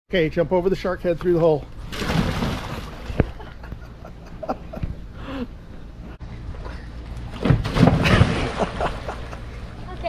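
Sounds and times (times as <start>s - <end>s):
splash into pool: 1.9s - 3.2s, 7.3s - 9.2s.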